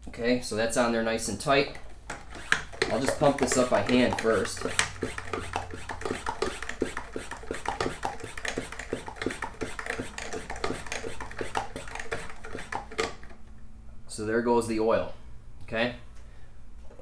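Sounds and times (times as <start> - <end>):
hand pump strokes: 2.1 - 13.3.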